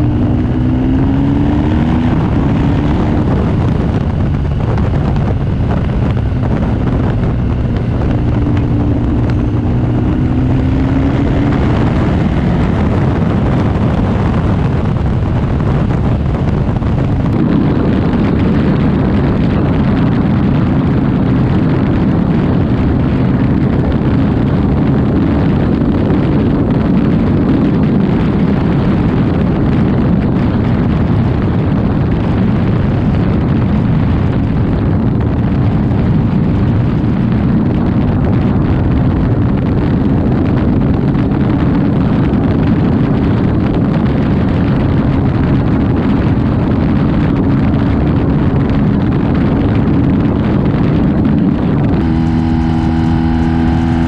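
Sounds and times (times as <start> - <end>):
motorcycle engine running: 0.0 - 54.0
wind buffeting microphone: 0.0 - 54.0.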